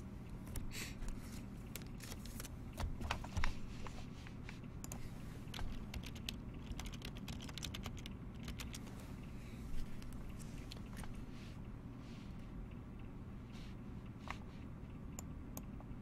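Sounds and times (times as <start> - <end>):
low steady hum: 0.0 - 16.0
keyboard typing clicks: 4.8 - 8.8.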